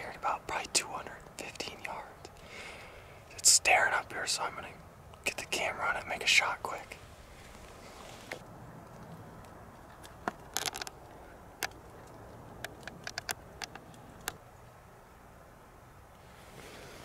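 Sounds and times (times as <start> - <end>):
quiet outdoor hiss: 0.0 - 17.0
sharp clicks and ticks: 8.9 - 14.4.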